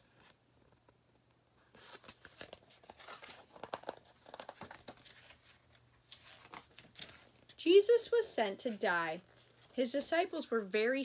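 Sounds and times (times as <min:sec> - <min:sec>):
book pages rustling: 0:01.6 - 0:07.6, 0:08.6 - 0:09.9.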